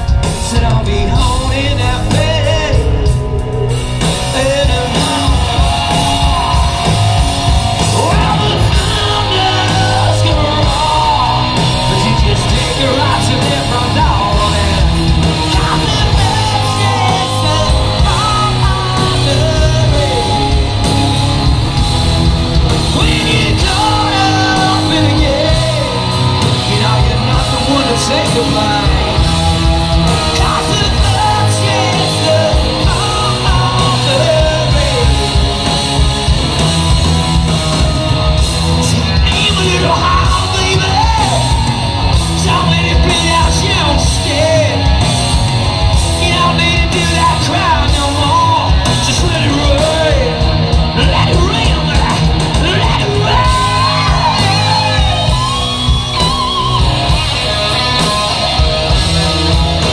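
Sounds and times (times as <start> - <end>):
live hard rock band: 0.0 - 59.9
man singing lead vocals: 0.0 - 59.9.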